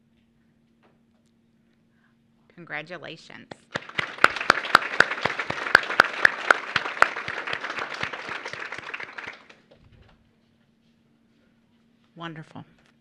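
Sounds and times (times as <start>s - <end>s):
audience applauding: 3.5s - 9.6s
loud close hand claps: 3.5s - 9.7s.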